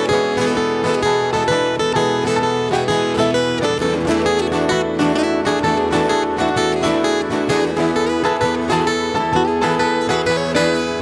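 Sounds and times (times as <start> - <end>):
acoustic guitars strumming: 0.0 - 11.0
electric keyboard chords: 0.0 - 11.0.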